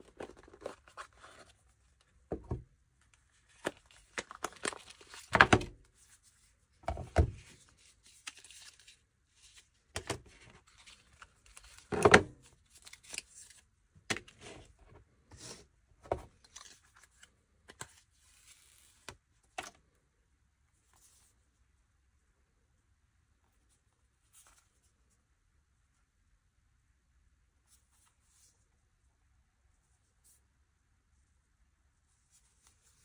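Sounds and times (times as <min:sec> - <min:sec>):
cardboard and paper rustling: 0:00.0 - 0:02.6, 0:03.3 - 0:19.1.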